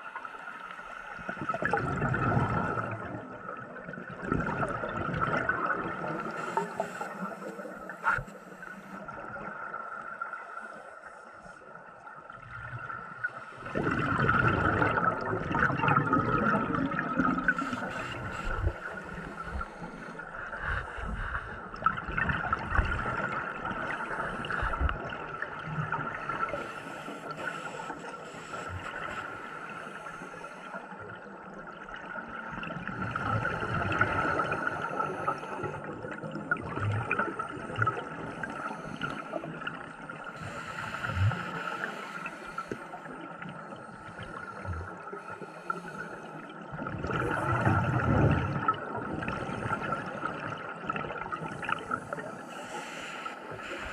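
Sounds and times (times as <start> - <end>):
scuba bubbles gurgling: 0.0 - 53.9.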